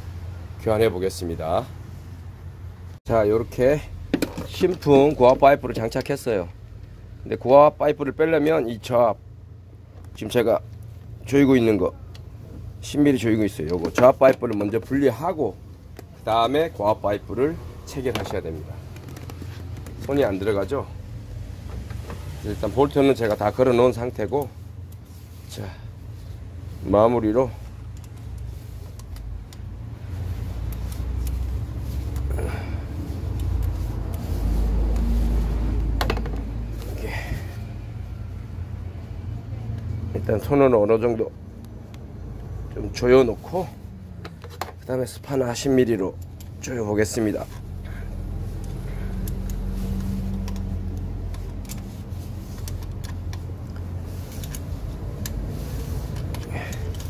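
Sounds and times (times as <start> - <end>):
steady low hum: 0.0 - 40.5
small metallic clicks and rattles: 48.6 - 51.9, 52.5 - 55.5.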